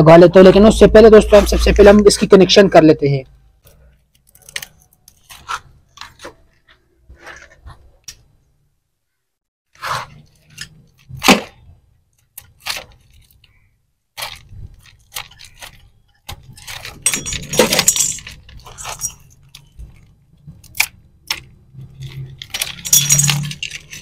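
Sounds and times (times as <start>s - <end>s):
hands handling wires and pipes: 3.6s - 8.4s, 10.1s - 24.0s.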